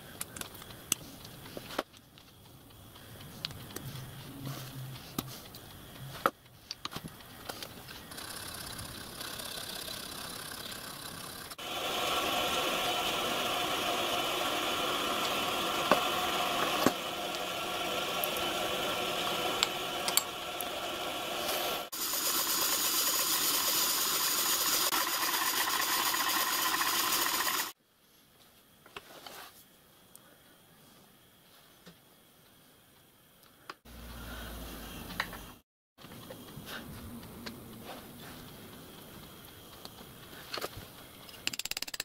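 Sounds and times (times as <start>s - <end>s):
workshop machine running: 8.1s - 27.8s
sharp clicks: 41.2s - 42.0s.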